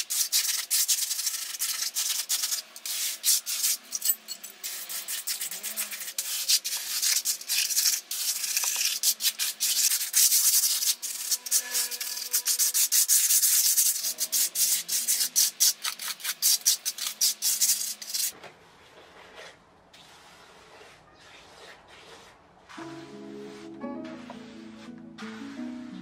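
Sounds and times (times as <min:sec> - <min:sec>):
trowel scraping wet cement: 0:00.0 - 0:23.0
faint background music: 0:22.7 - 0:26.0.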